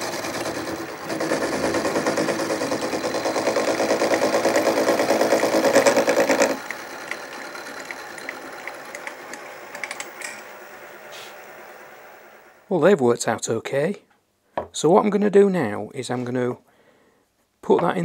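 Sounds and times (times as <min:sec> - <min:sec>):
mill spindle running with ticks: 0:00.0 - 0:10.5
end mill cutting brass: 0:00.0 - 0:12.6.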